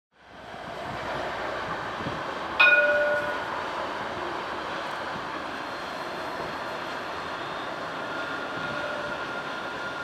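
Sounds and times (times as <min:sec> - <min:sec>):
tram rolling: 0:00.2 - 0:10.0
tram warning bell: 0:02.5 - 0:03.8, 0:05.6 - 0:10.0.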